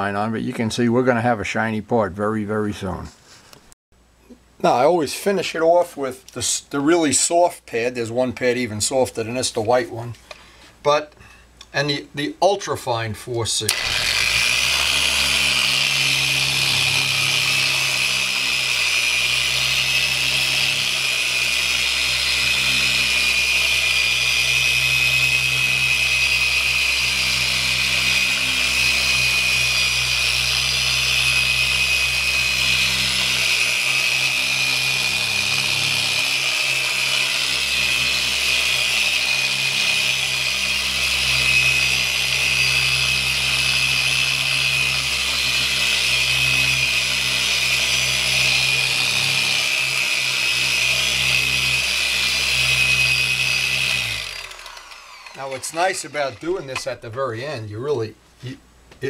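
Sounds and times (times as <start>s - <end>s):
electric polisher whining: 13.7s - 56.9s.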